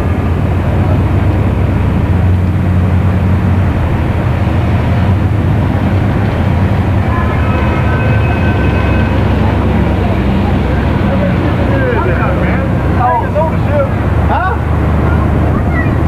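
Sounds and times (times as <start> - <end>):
car engine and road noise: 0.0 - 16.0
faint high whine: 6.8 - 10.9.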